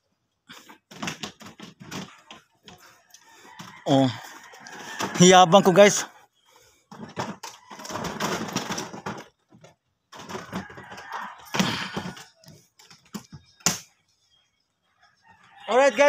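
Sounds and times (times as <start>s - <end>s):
rustling and clattering: 0.5s - 5.3s, 6.7s - 13.8s.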